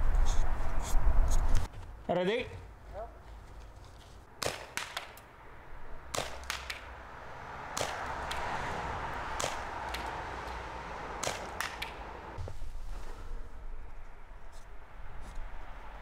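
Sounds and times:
airsoft pistol firing sharp cracks: 4.4 - 5.2, 6.1 - 6.9, 7.8 - 8.4, 9.4 - 10.1, 11.2 - 12.0.

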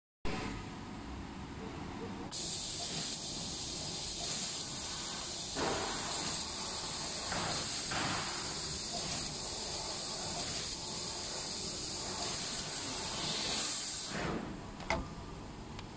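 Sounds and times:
laser cutter gas jet hissing: 2.3 - 14.4.

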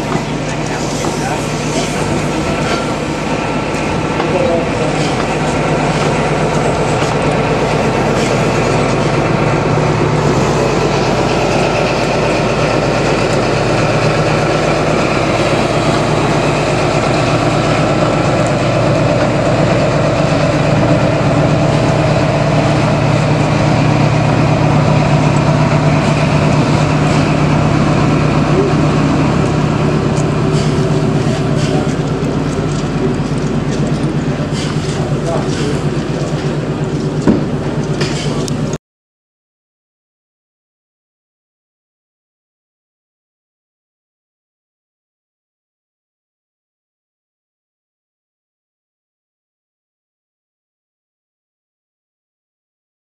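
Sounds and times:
train diesel engine drone: 0.0 - 38.8.

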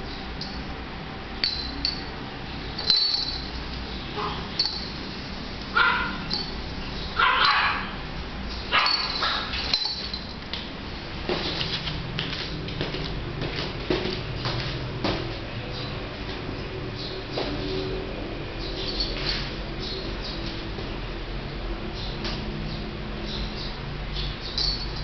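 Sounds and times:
light clinks: 1.4 - 2.1, 2.8 - 3.8, 4.6 - 5.0, 6.3 - 6.6, 8.8 - 10.4, 24.4 - 25.0
puppy yipping and barking: 5.8 - 6.5, 7.2 - 8.0, 8.7 - 9.6.

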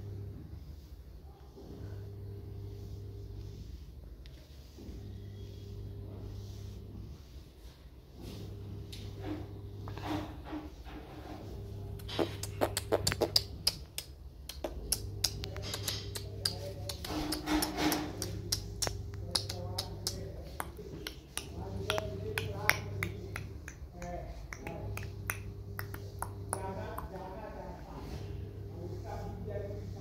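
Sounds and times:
parakeet chattering: 12.1 - 14.0.

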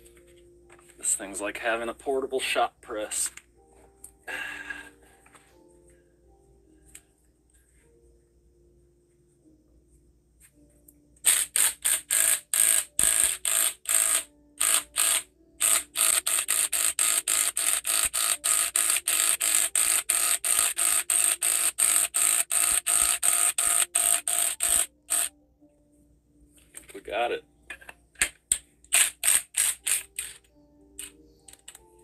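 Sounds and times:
impact wrench bursts: 11.2 - 25.3, 28.9 - 30.4.

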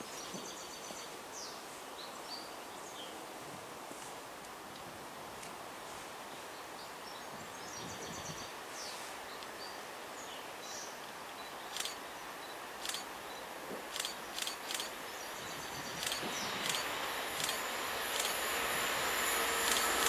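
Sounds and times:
steady hiss: 0.0 - 20.0
sharp high-pitched chirps: 15.8 - 18.4.

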